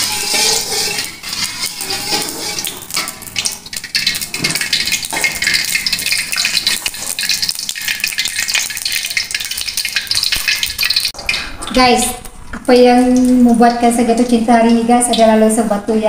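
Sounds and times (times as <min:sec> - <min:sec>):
metal ladle stirring: 0:00.0 - 0:11.8
hot oil sizzling in a wok: 0:00.0 - 0:12.0.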